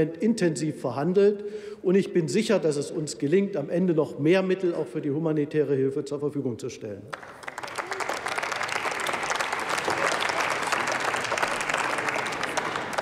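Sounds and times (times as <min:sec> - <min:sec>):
applause: 0:07.1 - 0:13.0.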